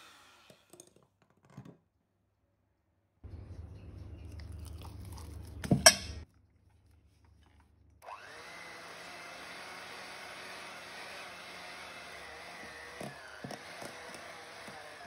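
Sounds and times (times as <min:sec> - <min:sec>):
electric hand mixer whining: 0:00.0 - 0:00.7, 0:08.0 - 0:15.0.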